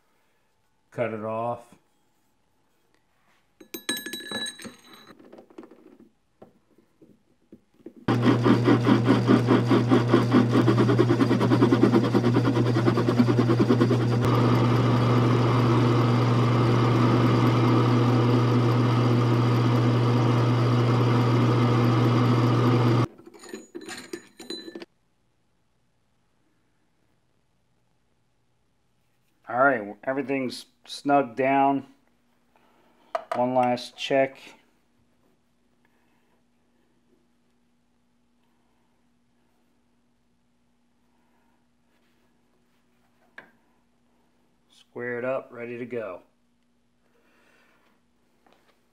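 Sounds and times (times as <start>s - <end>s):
metal clinks: 3.6s - 5.2s, 23.2s - 24.9s
lathe cut rattling: 8.1s - 23.1s
lathe motor hum: 8.1s - 23.1s.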